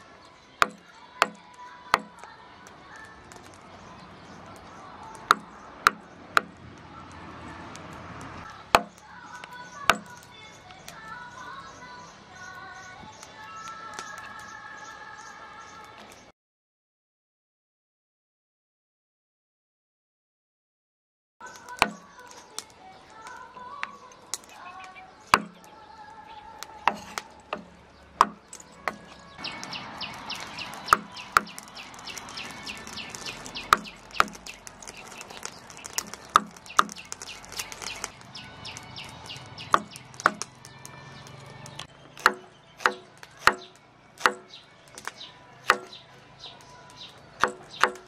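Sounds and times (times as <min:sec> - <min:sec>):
cleaver knocking on wooden block: 0:00.6 - 0:01.4, 0:25.4 - 0:25.6, 0:26.9 - 0:29.1, 0:39.7 - 0:40.5, 0:45.7 - 0:46.0, 0:47.4 - 0:48.0.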